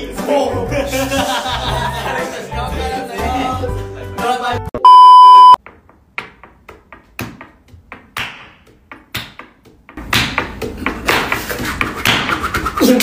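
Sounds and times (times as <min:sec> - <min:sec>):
test tone beep: 0:04.8 - 0:05.6.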